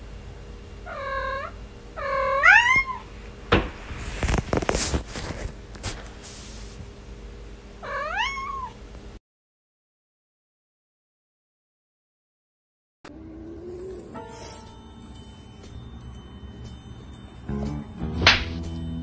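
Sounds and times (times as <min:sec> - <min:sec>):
cat meowing: 0:00.9 - 0:03.1, 0:07.8 - 0:08.8.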